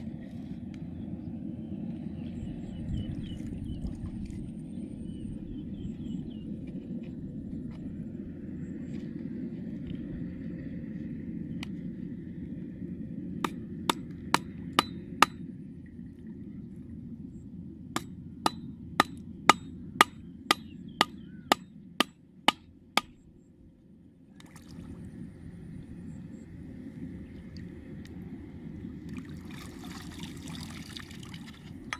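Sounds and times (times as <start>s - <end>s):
low rumble: 0.0s - 21.5s
hammer striking wooden stake: 13.4s - 15.4s, 18.0s - 23.2s.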